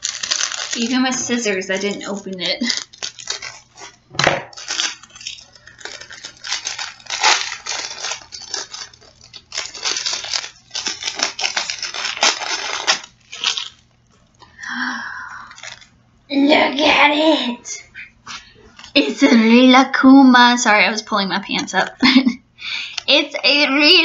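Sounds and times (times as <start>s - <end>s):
wrapper crackling and rustling: 0.0s - 14.4s, 15.4s - 16.0s, 18.3s - 19.4s.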